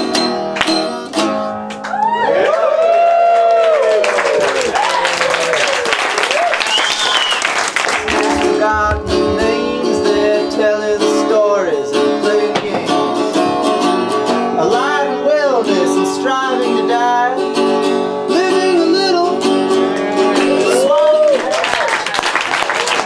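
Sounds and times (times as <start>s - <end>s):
person singing: 8.0s - 13.6s, 14.5s - 17.7s, 18.3s - 20.6s
acoustic guitar strumming chords: 8.0s - 20.6s.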